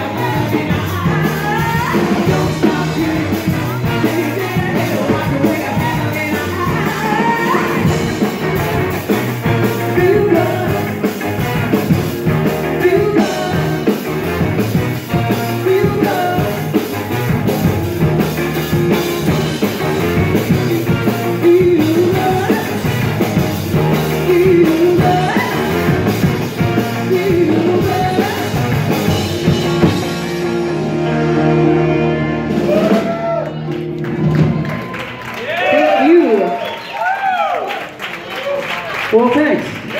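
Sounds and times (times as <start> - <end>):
woman singing lead vocal: 0.0 - 8.1, 9.9 - 10.9, 12.8 - 13.9, 15.6 - 16.6, 20.8 - 22.9, 23.8 - 26.0, 26.8 - 28.8
horn section: 0.0 - 36.5
live band playing: 0.0 - 39.9.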